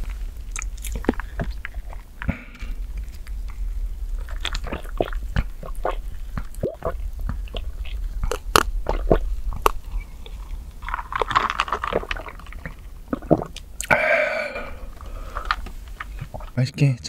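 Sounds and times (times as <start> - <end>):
gulps and swallows: 0.0 - 16.6
sharp wet mouth clicks: 0.5 - 1.2.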